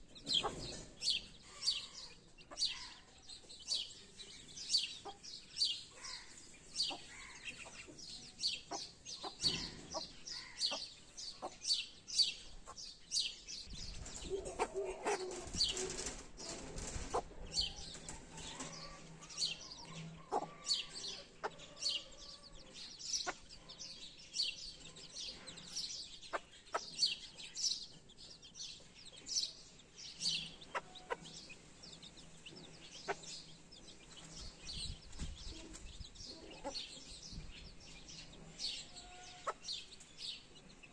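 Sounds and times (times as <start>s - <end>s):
chicks peeping: 0.0s - 40.9s
hen clucking: 4.8s - 5.3s, 5.9s - 11.7s, 14.1s - 16.2s, 16.9s - 23.5s, 25.4s - 27.4s, 30.3s - 33.8s, 35.5s - 37.1s, 38.4s - 40.9s.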